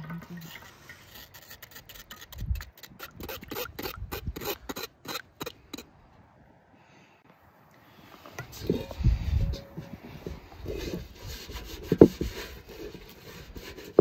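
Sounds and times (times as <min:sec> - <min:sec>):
metal spoon scraping wire sieve: 0:08.4 - 0:14.0.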